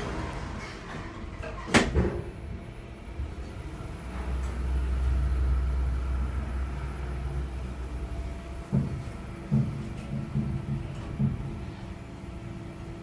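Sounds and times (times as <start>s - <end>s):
elevator low rumble: 0.0s - 13.0s
elevator knock: 8.6s - 11.8s.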